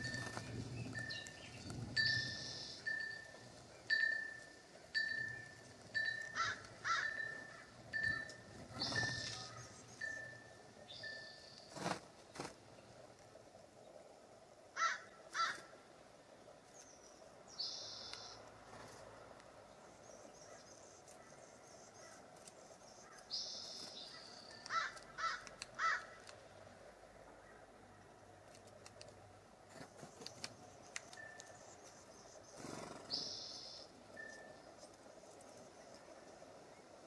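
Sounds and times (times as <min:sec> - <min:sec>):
low outdoor hiss: 0:00.0 - 0:37.0
higher longer bird calls: 0:02.0 - 0:11.8, 0:32.6 - 0:34.6
harsh bird calls: 0:05.3 - 0:12.0, 0:32.3 - 0:34.5.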